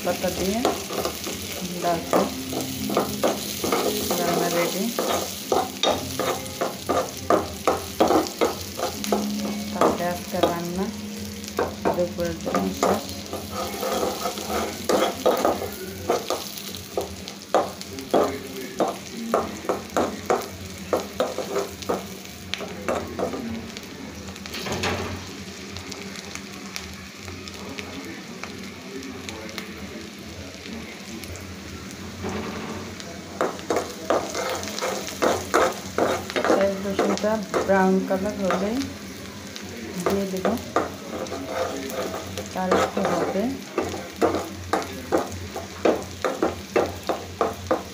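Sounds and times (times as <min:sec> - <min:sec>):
garlic sizzling in hot oil: 0:00.0 - 0:47.9
spatula scraping a pan: 0:00.3 - 0:09.6, 0:12.4 - 0:17.1, 0:21.0 - 0:22.1, 0:33.7 - 0:37.8, 0:40.5 - 0:47.9.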